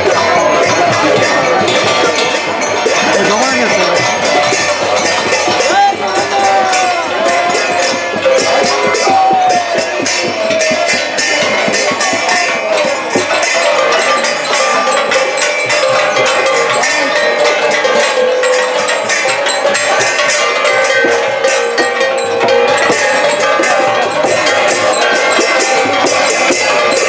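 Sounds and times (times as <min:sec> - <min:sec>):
crowd voices: 0:00.0 - 0:27.0
metal percussion clanging: 0:00.0 - 0:27.0.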